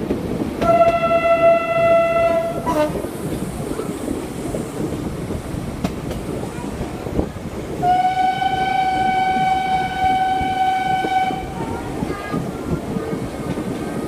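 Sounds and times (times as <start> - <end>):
train coaches running on rails: 0.0 - 14.0
steam locomotive whistle blast: 0.6 - 3.0, 7.8 - 11.5.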